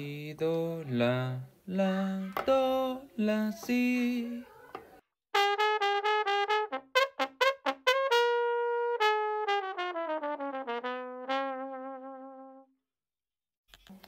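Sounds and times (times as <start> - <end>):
solo trombone playing: 5.3 - 12.7.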